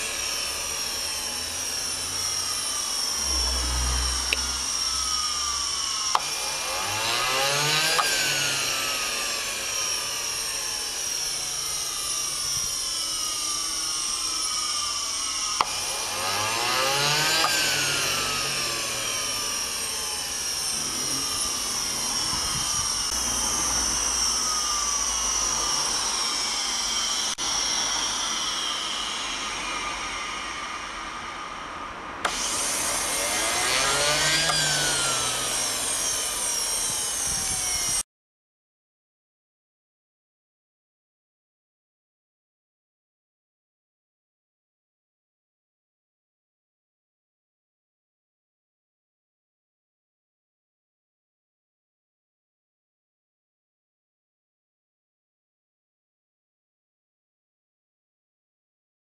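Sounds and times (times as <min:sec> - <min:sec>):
jet turbine whining: 0:00.0 - 0:38.0.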